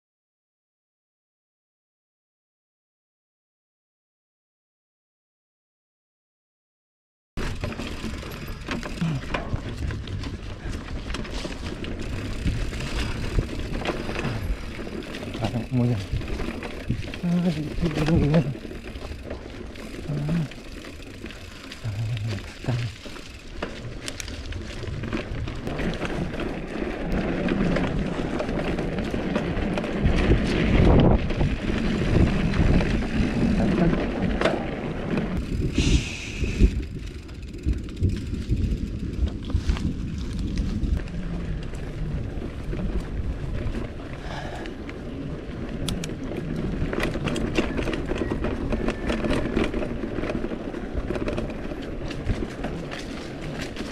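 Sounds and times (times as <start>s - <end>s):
tyres crunching over stones: 7.4s - 35.5s
bike rattling and knocking: 7.4s - 53.9s.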